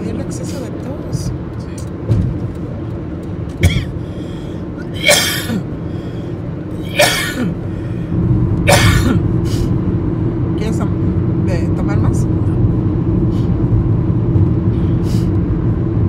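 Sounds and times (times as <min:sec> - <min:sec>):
car road and engine rumble: 0:00.0 - 0:16.0
person coughing: 0:03.6 - 0:04.0, 0:04.9 - 0:05.7, 0:06.8 - 0:07.6, 0:08.7 - 0:09.3.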